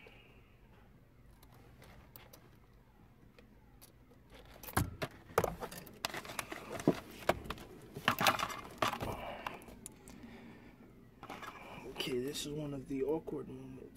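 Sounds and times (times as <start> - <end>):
rustling of wiring: 1.2 - 12.7
plastic parts clicking and knocking: 3.3 - 10.0.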